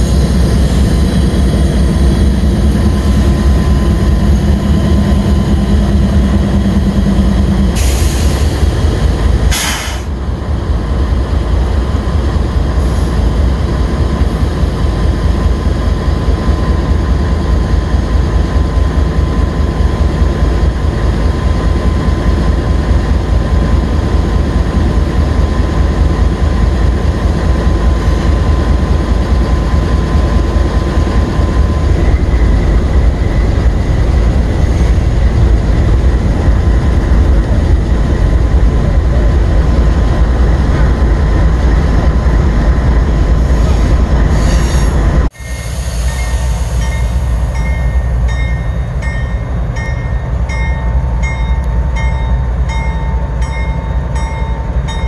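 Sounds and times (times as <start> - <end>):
freight train rumbling past: 0.0 - 55.0.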